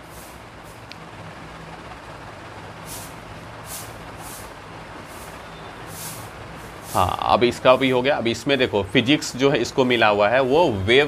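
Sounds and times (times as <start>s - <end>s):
short hissy puffs: 0.0s - 0.9s, 2.8s - 7.3s.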